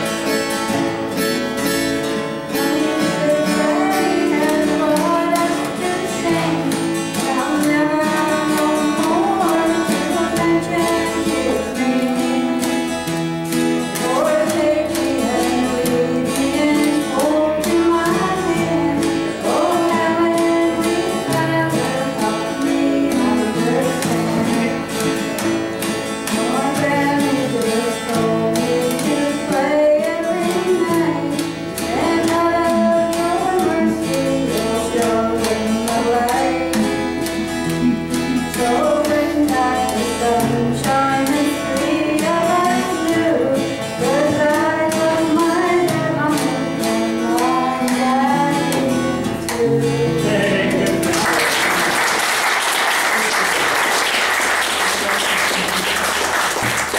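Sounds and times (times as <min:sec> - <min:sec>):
strummed acoustic guitar: 0:00.0 - 0:56.9
man and woman singing: 0:02.5 - 0:12.9, 0:13.9 - 0:25.1, 0:26.3 - 0:52.0
audience applauding: 0:50.8 - 0:56.9.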